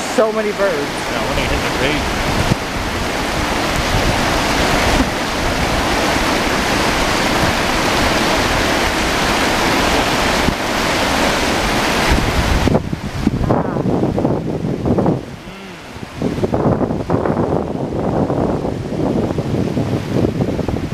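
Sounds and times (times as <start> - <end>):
water pouring down a bank: 0.0 - 13.3
river riffles rushing: 0.0 - 19.9
wind on microphone: 0.0 - 20.9.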